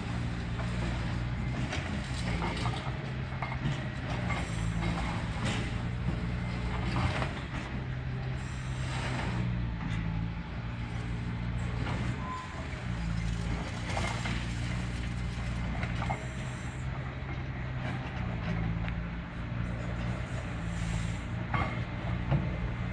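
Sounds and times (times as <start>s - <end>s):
excavator diesel engine running: 0.0s - 22.9s.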